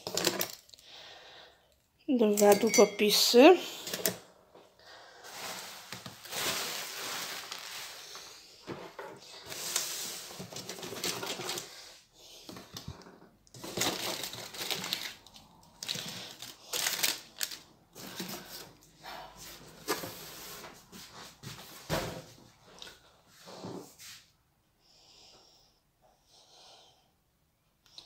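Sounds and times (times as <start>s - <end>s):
packaging crinkling and rustling: 0.0s - 0.7s, 5.3s - 8.5s, 9.3s - 11.8s, 13.5s - 18.8s.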